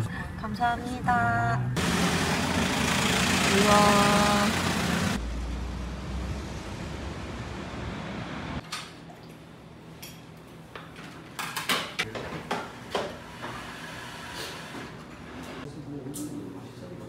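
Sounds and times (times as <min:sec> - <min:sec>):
street noise rumble: 0:00.0 - 0:08.6.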